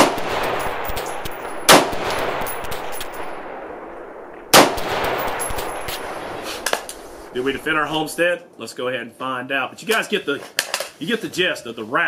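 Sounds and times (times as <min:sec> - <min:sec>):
rifle shots with echo: 0:00.0 - 0:08.2.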